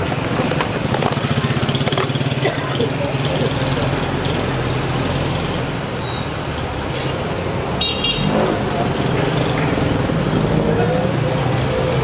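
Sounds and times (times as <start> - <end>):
vehicle engine running: 0.0 - 5.9
car horn toot: 7.8 - 8.3.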